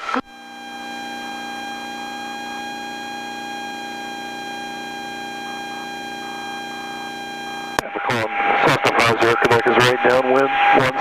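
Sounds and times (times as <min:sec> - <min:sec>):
intercom hum and whine: 0:00.0 - 0:11.0
radio transmission click: 0:07.7 - 0:09.8.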